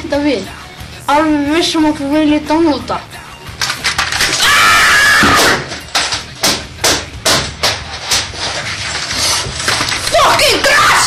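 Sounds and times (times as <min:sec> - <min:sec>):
keyboard being smashed: 0:03.6 - 0:10.5
person yelling: 0:10.1 - 0:11.0.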